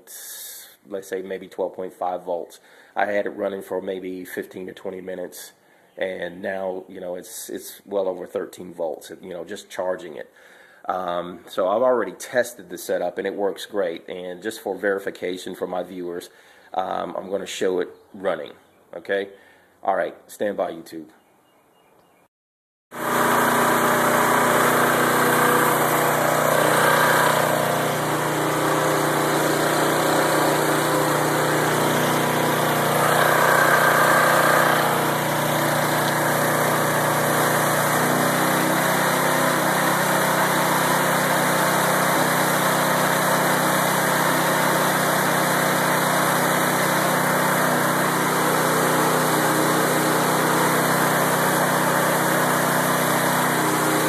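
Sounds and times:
lawnmower engine running: 22.9 - 54.0.

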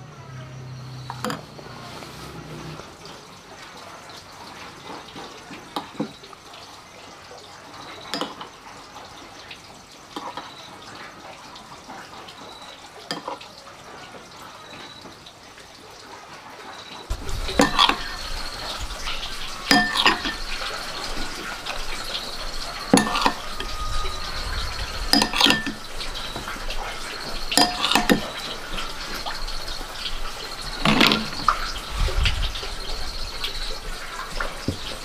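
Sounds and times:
cricket trilling: 0.0 - 3.5, 17.1 - 35.0
spoon clinking on ceramic bowl: 19.6 - 24.3, 25.1 - 26.5, 27.5 - 28.4.

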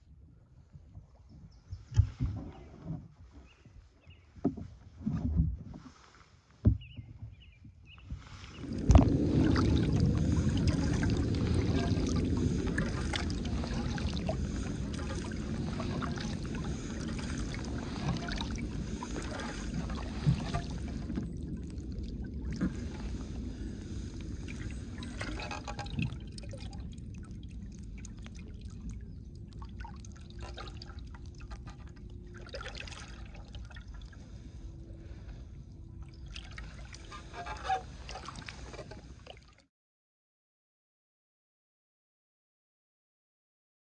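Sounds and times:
water lapping along kayak hull: 0.0 - 39.7
small drips and taps: 24.5 - 32.9.

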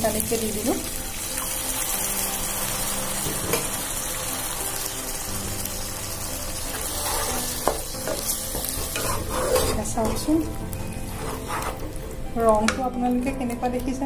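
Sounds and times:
sauce sizzling in frying pan: 0.0 - 14.0
wooden spatula stirring: 7.0 - 12.2.

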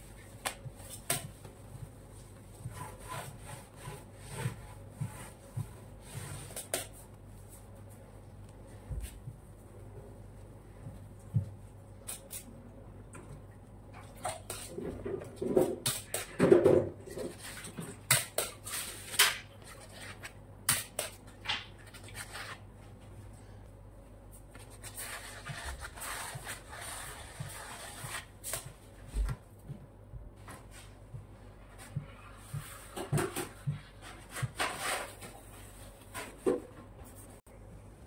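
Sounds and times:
spatula scraping cream: 2.6 - 5.4, 24.8 - 28.6.

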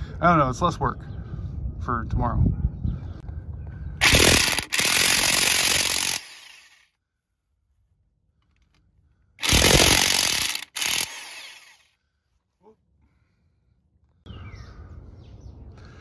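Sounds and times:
impact wrench hammering lug nuts: 4.0 - 6.6, 9.4 - 11.8.

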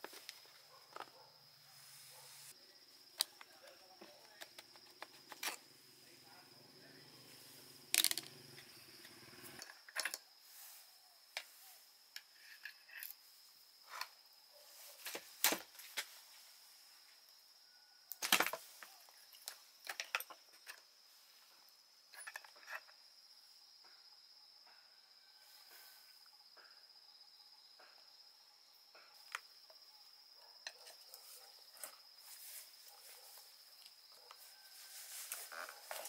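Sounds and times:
high insect drone: 0.0 - 36.0
metallic clinks and knocks: 22.1 - 23.0.

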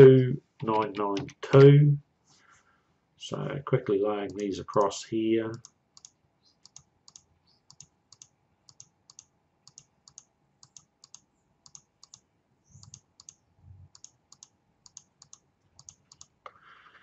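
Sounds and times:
computer mouse clicks: 4.3 - 4.9, 5.5 - 12.2, 12.8 - 16.6.

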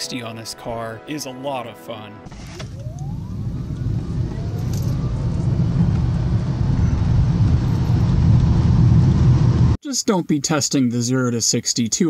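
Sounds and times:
road and wind noise rumble: 2.2 - 9.8.

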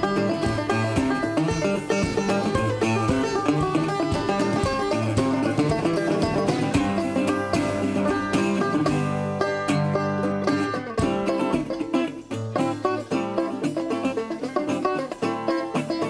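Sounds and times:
plucked string music: 0.0 - 16.0.

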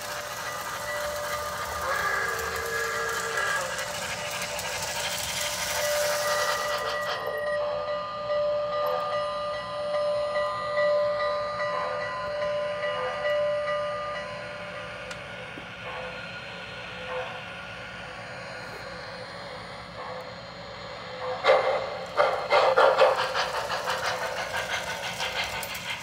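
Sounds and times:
steam hiss from small speaker: 0.0 - 7.4
model train running with whine: 0.0 - 26.0.

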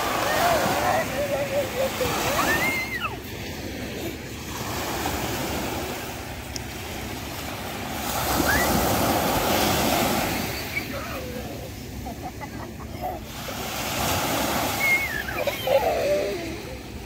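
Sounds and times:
waves breaking on sandy beach: 0.0 - 17.0.

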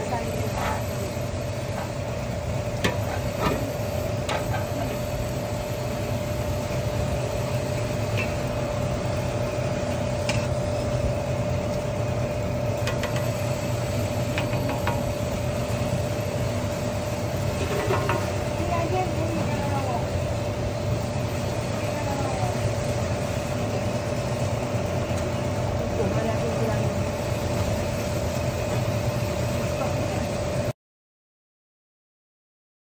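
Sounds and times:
electric motor humming and whining: 0.0 - 30.7.

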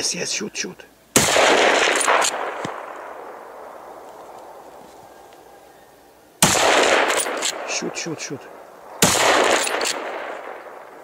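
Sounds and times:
rifle shots: 1.2 - 4.0, 6.4 - 8.1, 8.8 - 11.0
gunshot echo rolling: 1.2 - 4.6, 6.4 - 11.0.

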